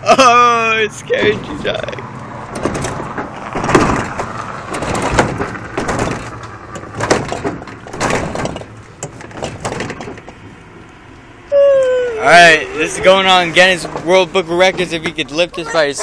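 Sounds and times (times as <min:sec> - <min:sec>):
fridge knocking and scraping: 0:02.6 - 0:10.3.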